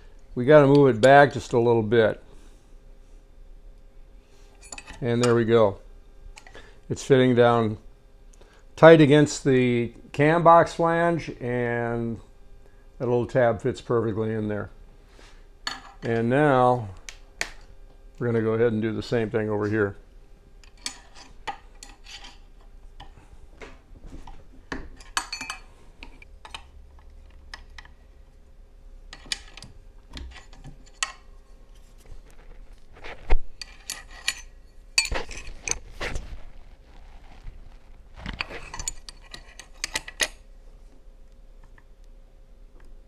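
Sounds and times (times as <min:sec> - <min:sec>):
metal tools clinking and scraping: 0:04.6 - 0:05.4, 0:20.6 - 0:23.1, 0:25.0 - 0:26.7, 0:29.1 - 0:31.9, 0:33.5 - 0:35.9, 0:38.3 - 0:40.4.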